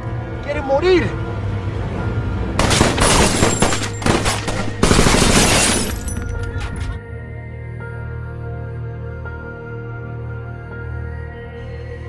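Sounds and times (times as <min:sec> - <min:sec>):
low music drone: 0:01.1 - 0:12.0
rifle gunfire: 0:02.6 - 0:05.9.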